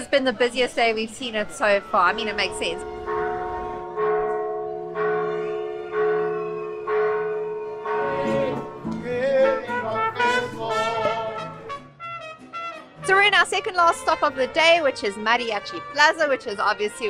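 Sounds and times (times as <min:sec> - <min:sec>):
church bell tolling: 0:01.4 - 0:10.8
mariachi trumpets playing melody: 0:01.5 - 0:05.5, 0:07.7 - 0:17.0.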